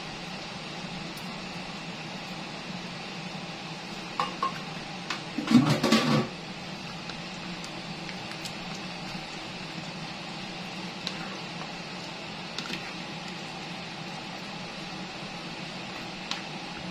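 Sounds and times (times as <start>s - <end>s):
stirring thick stew: 6.6s - 16.9s.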